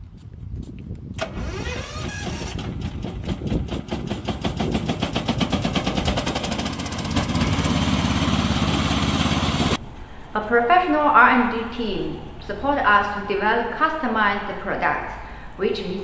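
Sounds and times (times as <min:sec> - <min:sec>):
mower petrol engine starting: 0:01.2 - 0:09.8.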